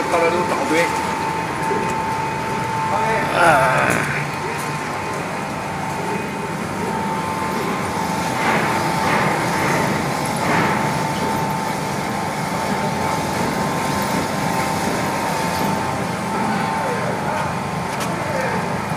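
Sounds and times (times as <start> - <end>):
industrial machinery running: 0.0 - 17.9.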